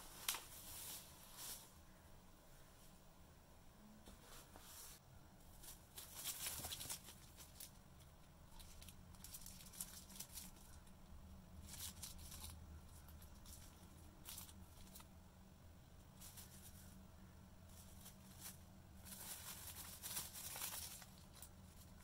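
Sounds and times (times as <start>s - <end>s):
paper and plastic crinkling: 5.6s - 11.0s, 11.6s - 15.1s, 17.7s - 22.0s.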